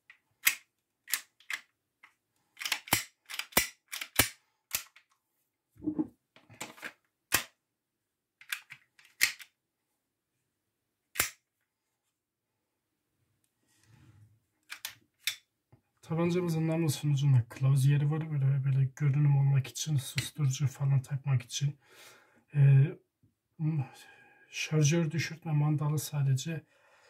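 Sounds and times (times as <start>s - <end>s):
toy pistol slide clicking: 2.6s - 5.0s, 11.2s - 11.4s.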